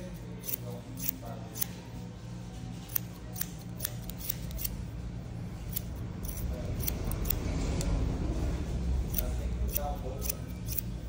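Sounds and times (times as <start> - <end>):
scissors snipping hair: 0.4 - 1.8, 2.8 - 4.8, 5.7 - 7.9, 9.1 - 11.0.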